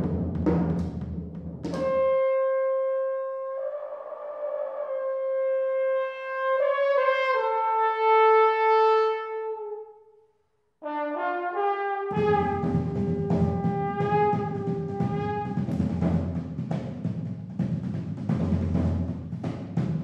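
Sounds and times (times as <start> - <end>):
jazz drum kit: 0.0 - 2.3, 12.1 - 20.0
trombone and saxophone chord: 11.5 - 15.7.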